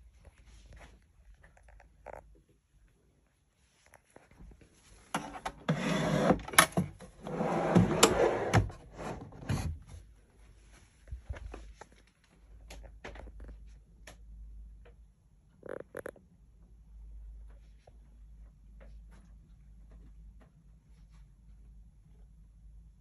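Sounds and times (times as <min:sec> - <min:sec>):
wooden shelf sliding: 0:05.2 - 0:09.8.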